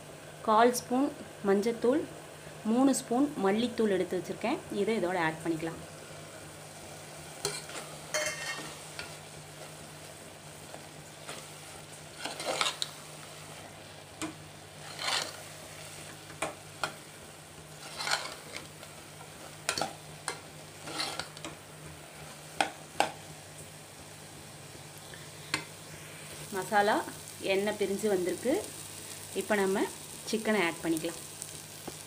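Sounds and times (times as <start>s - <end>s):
light sizzle: 0.0s - 32.0s
metal ladle scraping a pot: 7.5s - 8.7s, 12.2s - 12.9s, 14.8s - 15.4s, 17.8s - 18.7s, 20.8s - 21.4s.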